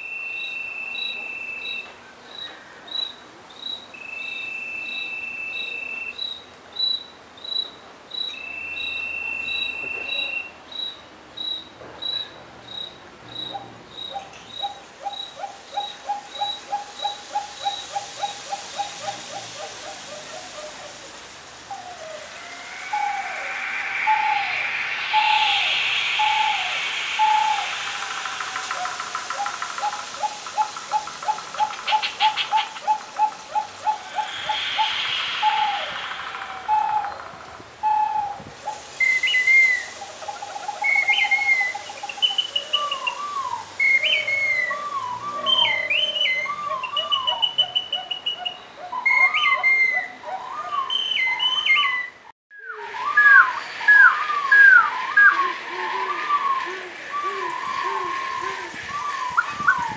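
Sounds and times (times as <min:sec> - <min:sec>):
whistle owl-like hoots: 0:13.5 - 0:59.9
hissing rattle: 0:14.3 - 0:44.8.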